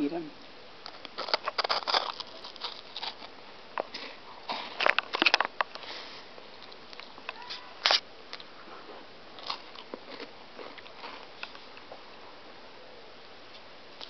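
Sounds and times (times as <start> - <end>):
cracker crunching: 0.8 - 5.8, 6.5 - 12.0.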